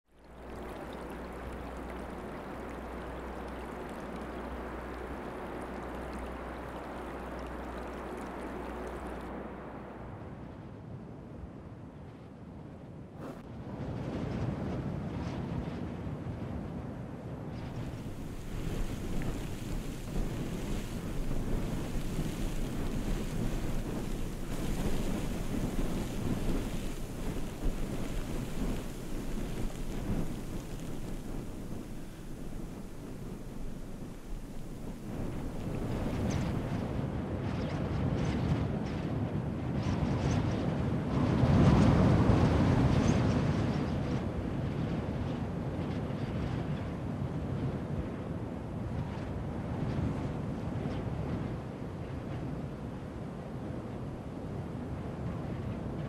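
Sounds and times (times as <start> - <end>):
rushing outdoor ambience: 0.2 - 10.6, 17.6 - 37.2
wind buffeting microphone: 0.2 - 10.6, 17.6 - 46.9
low rumble: 0.2 - 10.8, 17.6 - 37.2.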